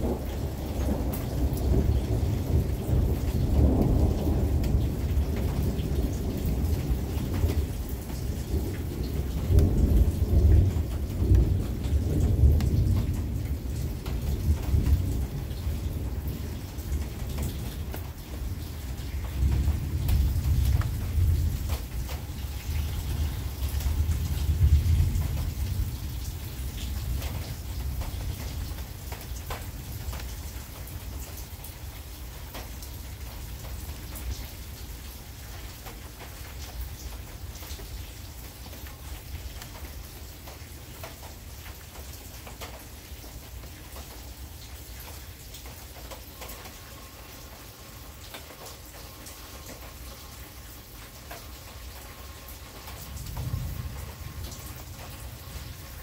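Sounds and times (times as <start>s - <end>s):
low rumble of thunder: 0.0s - 56.0s
rain falling: 0.0s - 56.0s
raindrops clicking on surfaces: 0.0s - 56.0s.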